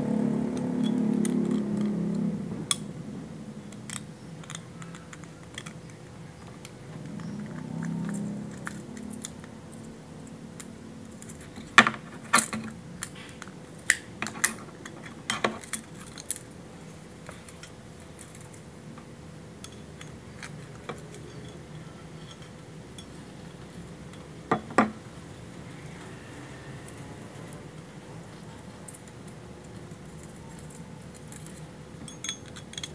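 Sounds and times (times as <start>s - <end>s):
metal clock parts clinking: 3.7s - 10.0s, 19.6s - 24.3s, 28.4s - 32.9s.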